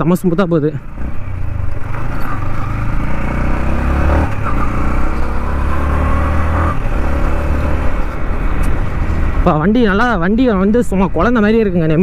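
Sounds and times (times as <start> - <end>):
motorcycle engine accelerating: 0.8 - 9.5.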